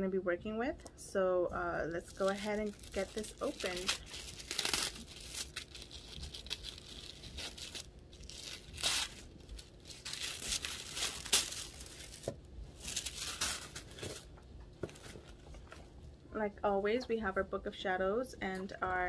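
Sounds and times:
paper packaging rustling and ripping: 0:02.0 - 0:15.8.

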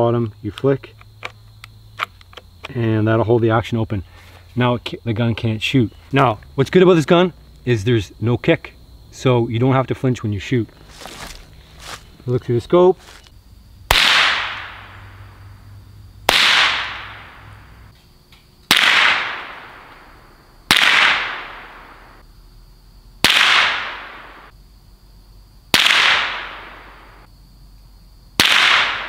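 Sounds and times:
rifle shots with echo: 0:13.9 - 0:15.2, 0:16.3 - 0:17.6, 0:18.7 - 0:20.0, 0:20.7 - 0:22.1, 0:23.2 - 0:24.5, 0:25.8 - 0:27.1, 0:28.4 - 0:29.0.

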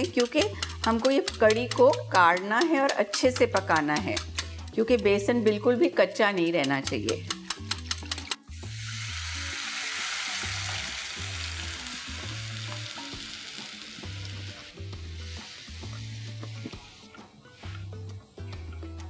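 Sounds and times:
liquid sizzling in hot oil: 0:06.8 - 0:18.6.

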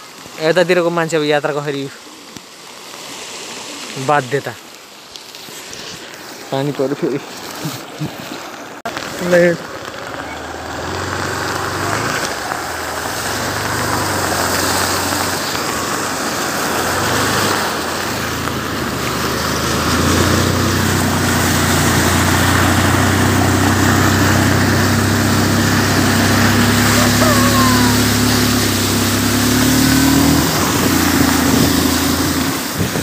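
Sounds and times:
water splashing around wheels: 0:00.0 - 0:33.0
vehicle engine running: 0:08.9 - 0:33.0.

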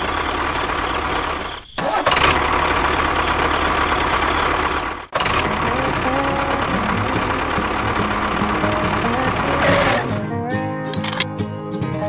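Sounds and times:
tractor engine running: 0:00.0 - 0:10.2, 0:10.9 - 0:11.3.

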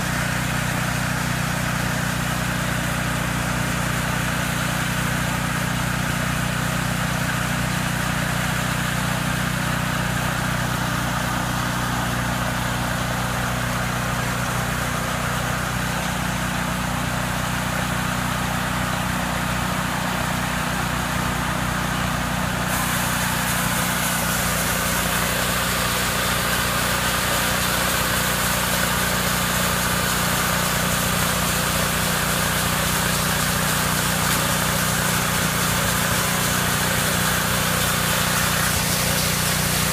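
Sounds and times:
band saw sawing log: 0:22.6 - 0:39.9.

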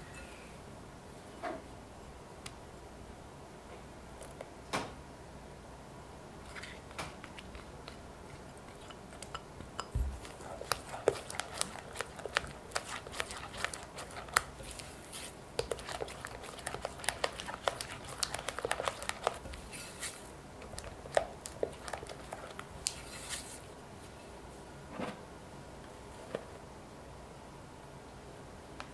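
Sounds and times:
spatula scraping glass bowl: 0:10.2 - 0:20.2.

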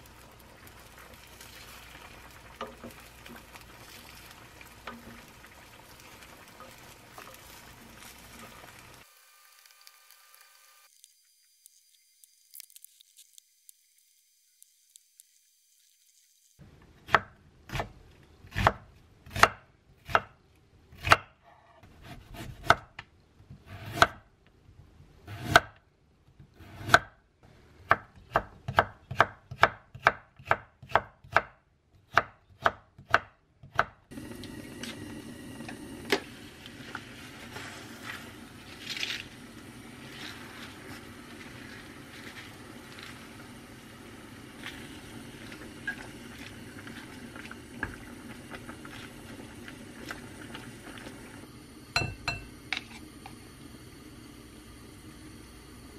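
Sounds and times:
spinach blanching in hot water: 0:00.0 - 0:16.6, 0:34.1 - 0:55.9.

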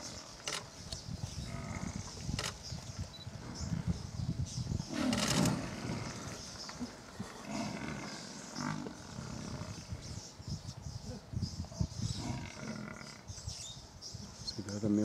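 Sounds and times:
lion growling and roaring: 0:04.9 - 0:10.0.

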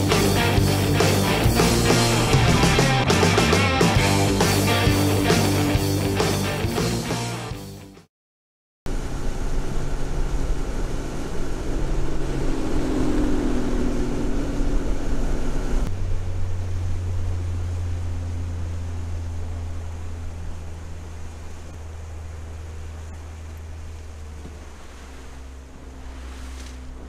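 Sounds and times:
outboard motor running: 0:00.0 - 0:06.4, 0:08.9 - 0:27.0
music: 0:00.0 - 0:08.1
wind: 0:08.9 - 0:27.0
rushing water: 0:16.0 - 0:27.0.

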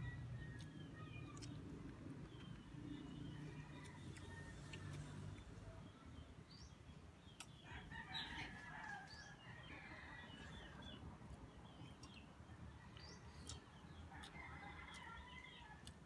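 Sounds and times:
faint rooster crowing: 0:00.0 - 0:01.5, 0:03.0 - 0:06.1, 0:07.6 - 0:11.0, 0:12.7 - 0:16.0.

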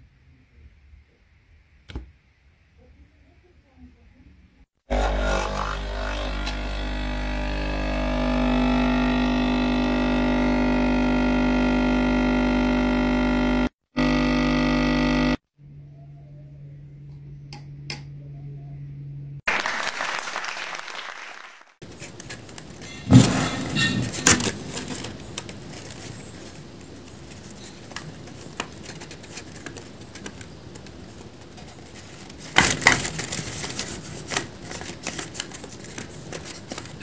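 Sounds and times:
coffee machine pump humming: 0:06.4 - 0:15.4.

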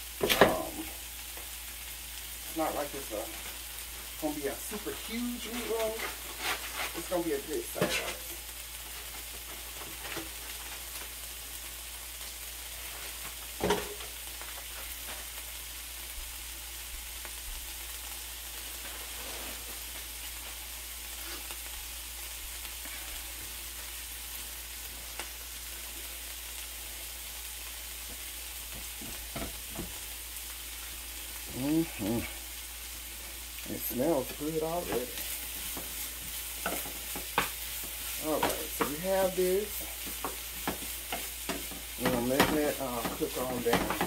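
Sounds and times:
onions sizzling in skillet: 0:00.0 - 0:44.0.

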